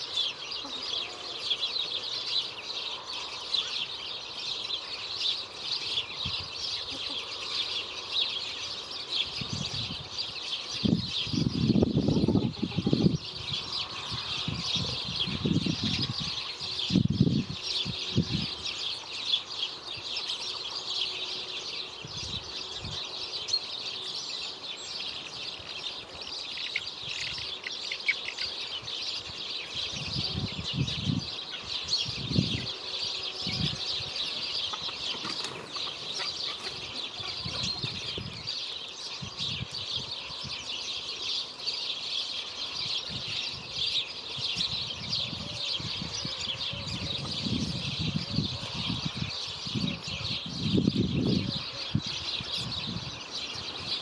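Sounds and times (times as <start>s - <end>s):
small birds chirping: 0.0s - 54.0s
wings fluttering: 34.6s - 38.2s.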